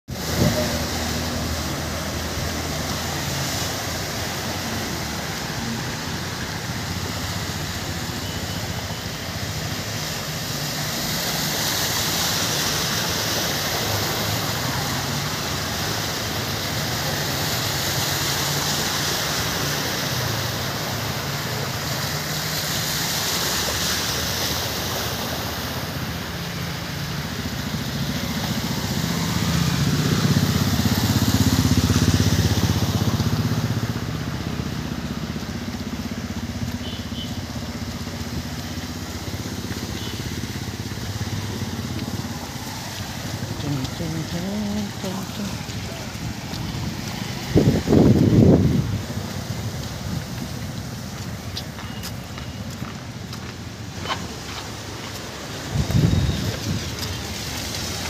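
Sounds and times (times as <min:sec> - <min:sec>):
tyres churning flood water: 0:00.0 - 0:58.0
low engine hum: 0:27.1 - 0:58.0.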